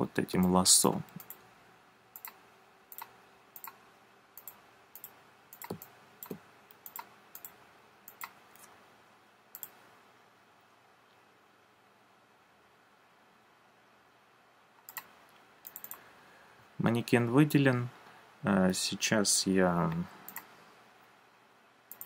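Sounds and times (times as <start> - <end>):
computer mouse clicks: 1.1 - 1.4, 2.2 - 3.8, 4.4 - 8.7, 9.5 - 9.8, 14.8 - 16.0, 19.9 - 20.5.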